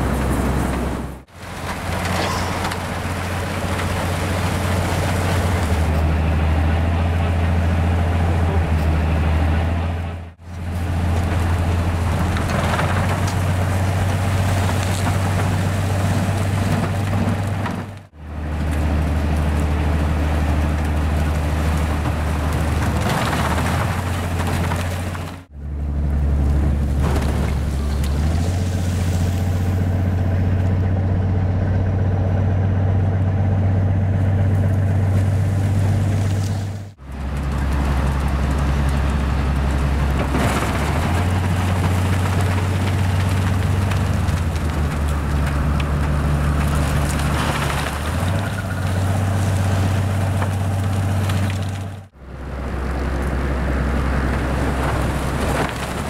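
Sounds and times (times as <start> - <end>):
low engine drone: 0.0 - 14.7, 25.5 - 41.2.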